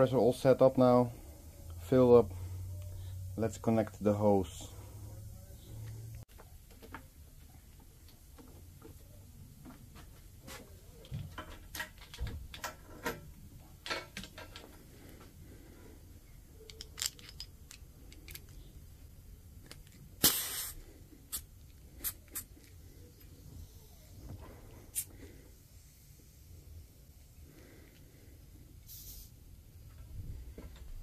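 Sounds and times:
metal fittings clicking: 0:16.6 - 0:18.7
compressed air hiss: 0:20.2 - 0:22.6, 0:23.6 - 0:26.8, 0:28.8 - 0:29.5.

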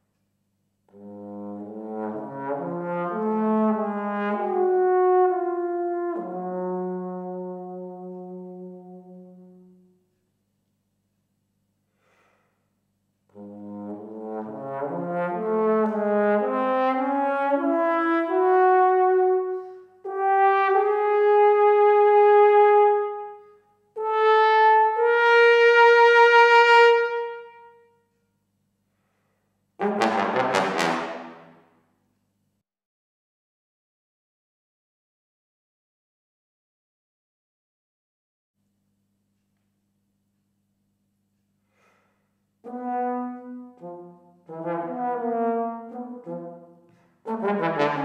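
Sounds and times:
trombone playing: 0:00.9 - 0:09.9, 0:13.3 - 0:27.8, 0:29.8 - 0:31.6, 0:42.7 - 0:48.0.

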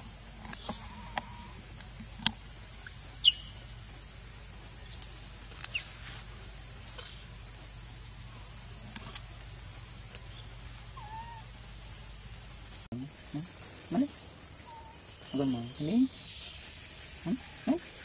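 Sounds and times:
high insect hum: 0:00.0 - 0:18.0.

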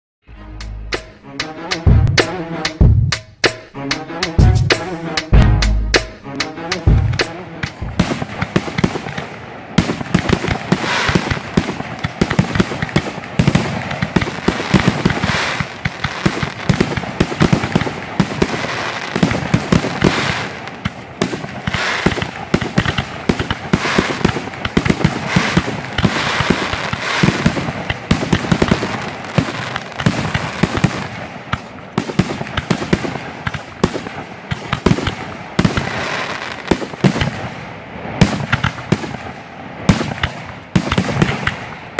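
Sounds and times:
fireworks bursting: 0:01.0 - 0:41.9.

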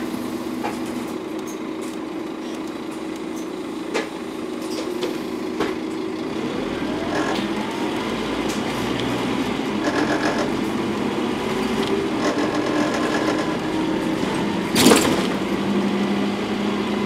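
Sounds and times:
bus diesel engine running: 0:00.0 - 0:17.0
loud burst of noise: 0:09.8 - 0:10.8, 0:12.0 - 0:15.6.

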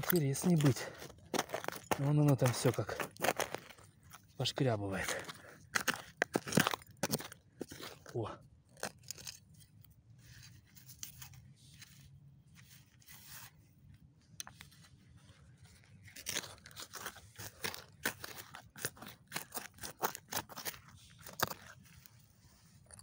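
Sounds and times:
hands rustling through earth: 0:14.6 - 0:22.8.

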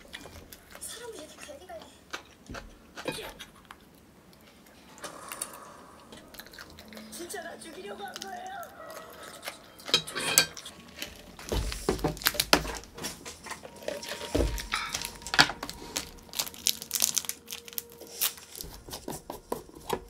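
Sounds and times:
plastic wrapper crinkling: 0:06.3 - 0:20.0.

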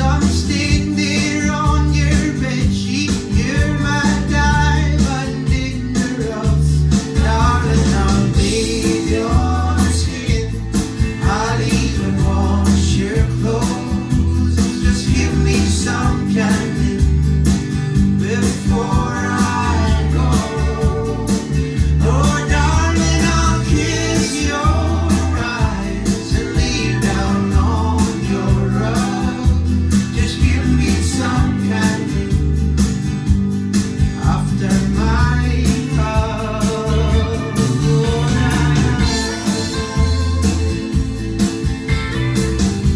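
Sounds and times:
person singing: 0:00.0 - 0:32.7, 0:34.0 - 0:41.0
deep bass notes: 0:00.0 - 0:42.9
recorded song through loudspeakers: 0:00.0 - 0:42.9.

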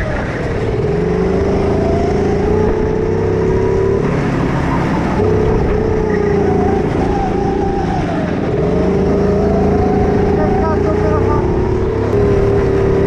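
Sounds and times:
go-kart engine at high revs: 0:00.0 - 0:13.0.

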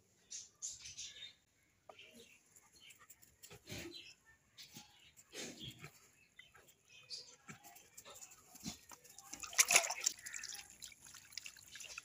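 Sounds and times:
water splashing and dripping: 0:08.4 - 0:12.0.

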